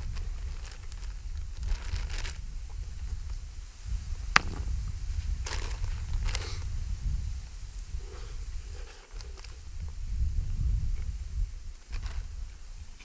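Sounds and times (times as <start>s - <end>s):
plastic bag crinkling: 0.0s - 2.4s, 5.4s - 6.4s
wind rumble on microphone: 0.0s - 13.0s.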